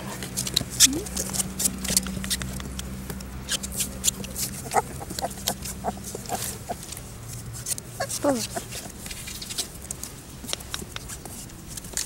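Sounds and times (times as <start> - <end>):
puppy claws scratching: 0.1 - 12.0
puppy high squeaks: 8.0 - 9.0.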